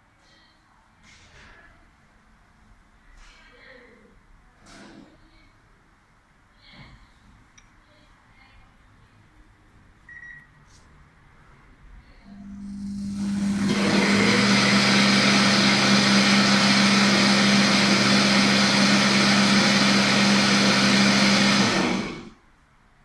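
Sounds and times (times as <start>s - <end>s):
blender motor whirring: 12.4s - 22.4s.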